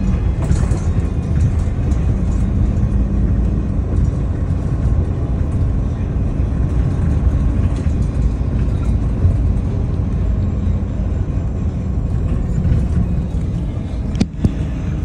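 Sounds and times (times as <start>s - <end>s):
bus engine and road rumble: 0.0s - 15.0s.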